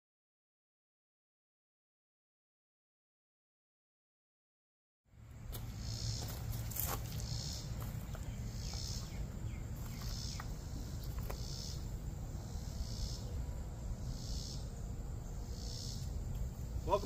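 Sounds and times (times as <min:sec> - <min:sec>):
insects buzzing: 0:05.1 - 0:17.0.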